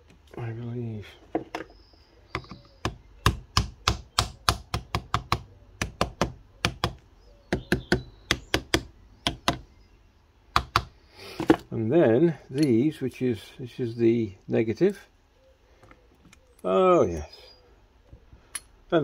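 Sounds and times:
hard taps on car battery: 0:10.5 - 0:11.6.

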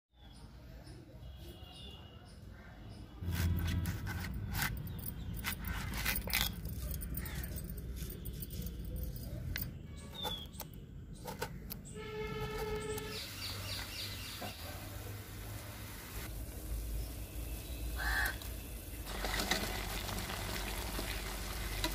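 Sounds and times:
blade cutting and peeling gourd: 0:03.2 - 0:08.7.

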